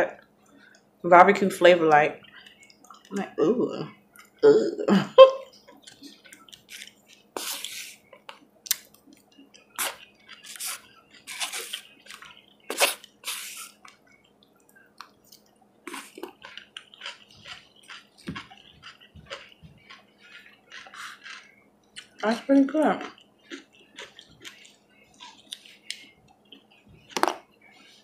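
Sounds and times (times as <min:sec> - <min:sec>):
person chewing: 0:02.2 - 0:03.2, 0:05.4 - 0:28.0
lip smacks: 0:05.7 - 0:22.2.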